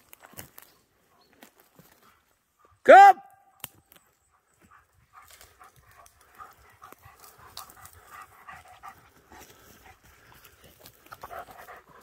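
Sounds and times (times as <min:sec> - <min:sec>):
dog panting: 0:04.3 - 0:12.0.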